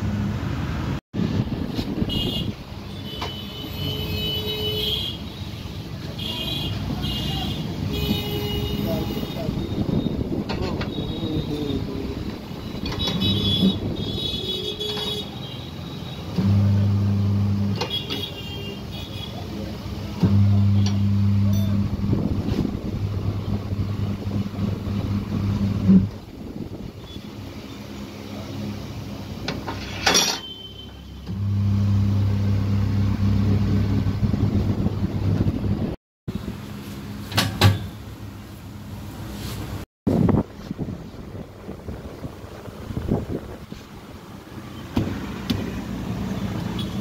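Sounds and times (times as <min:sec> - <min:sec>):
workshop and street noise: 0:00.0 - 0:47.0
tyre changer motor humming: 0:16.3 - 0:17.8, 0:20.1 - 0:26.4
sharp metal clank: 0:29.7 - 0:30.6.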